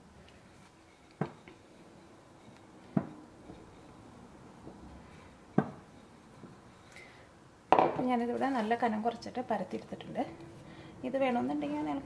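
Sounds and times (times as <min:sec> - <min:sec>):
rolling pin rolling dough: 0:00.4 - 0:06.9
rolling pin knocks: 0:07.7 - 0:08.1.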